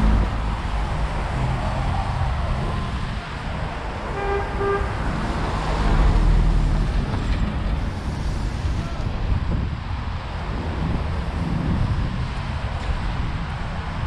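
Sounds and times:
passing vehicle rumble: 0:00.0 - 0:14.0
street traffic: 0:00.0 - 0:14.0
vehicle horn toots: 0:04.1 - 0:05.1.

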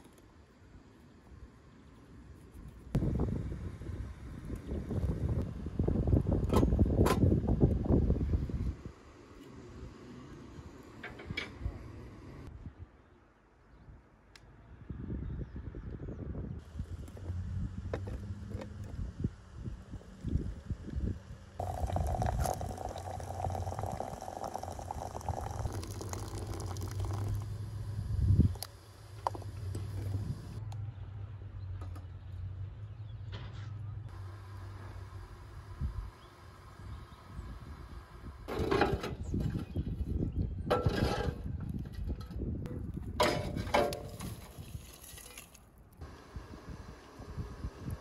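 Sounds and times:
wind rumble on microphone: 0:02.9 - 0:09.0, 0:14.7 - 0:28.7, 0:29.3 - 0:30.6, 0:35.5 - 0:45.2, 0:46.0 - 0:48.0
water pouring into glass teapot: 0:21.6 - 0:27.6.

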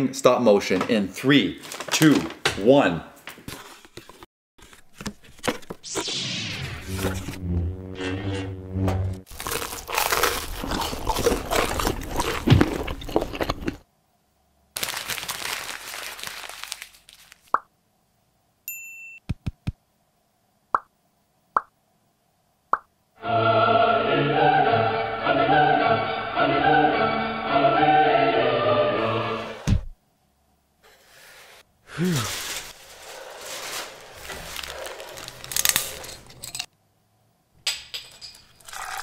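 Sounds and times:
burst of noise: 0:05.9 - 0:09.3
loud crunching: 0:09.3 - 0:13.8, 0:32.1 - 0:36.4
dramatic choral music: 0:23.2 - 0:29.6.

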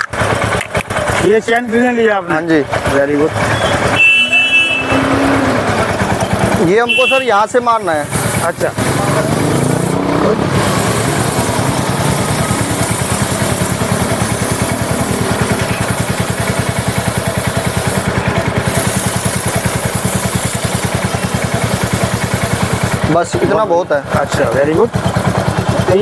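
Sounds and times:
motorcycle engine running: 0:00.0 - 0:26.0
aerosol spray hiss: 0:07.8 - 0:09.9, 0:10.6 - 0:23.1.

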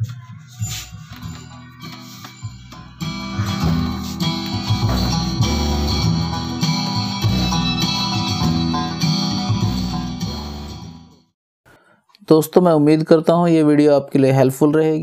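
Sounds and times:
guitar music with heavy bass: 0:00.7 - 0:11.1
speaker cabinet vibrating: 0:03.0 - 0:08.9.

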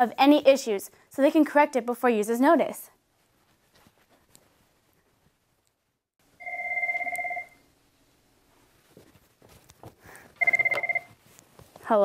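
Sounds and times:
desk phone warbling ring: 0:06.4 - 0:07.6, 0:10.4 - 0:11.2.

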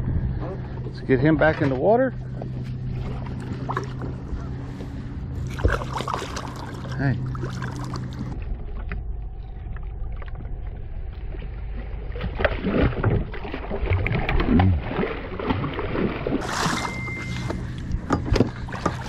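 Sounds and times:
low rumble: 0:00.0 - 0:19.0
fish splashing in water: 0:05.4 - 0:08.9, 0:09.9 - 0:19.0.

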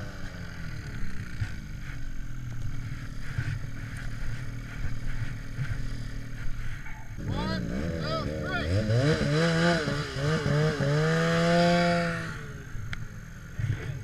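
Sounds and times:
snowmobile engine idling: 0:00.0 - 0:11.0.

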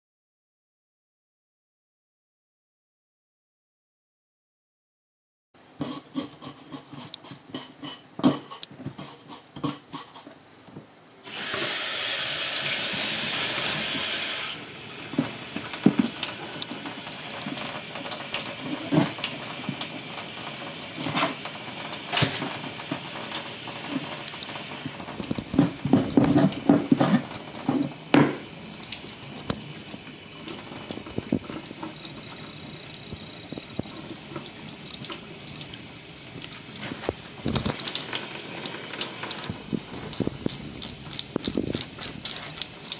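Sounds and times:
knife scraping fish scales: 0:05.8 - 0:10.3
tap water running: 0:11.2 - 0:42.9.

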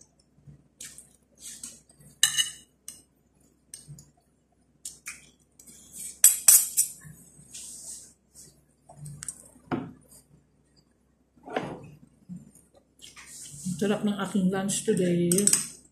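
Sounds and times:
cutlery clinking on ceramic plate: 0:02.2 - 0:02.7, 0:06.2 - 0:07.0.

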